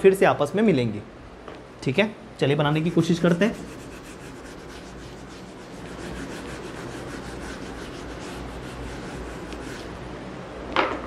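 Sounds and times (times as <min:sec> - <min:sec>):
eraser rubbing on whiteboard: 0:02.8 - 0:10.0.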